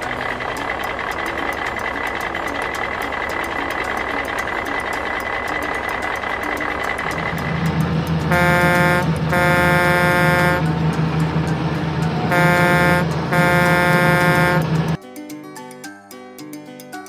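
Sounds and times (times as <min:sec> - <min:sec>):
diesel engine running: 0:00.0 - 0:15.0
truck air horn honking: 0:08.2 - 0:15.0.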